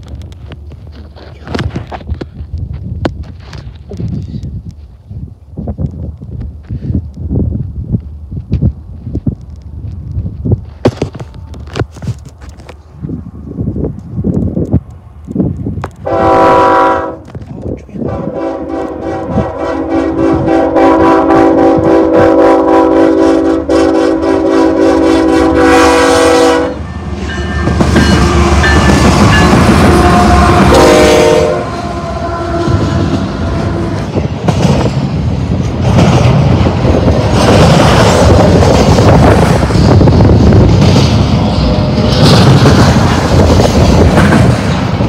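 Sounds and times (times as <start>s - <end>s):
locomotive air horn: 16.0s - 17.3s, 18.0s - 34.1s
diesel engines rumbling: 23.4s - 45.0s
train cars clacking over rail joints: 40.7s - 45.0s.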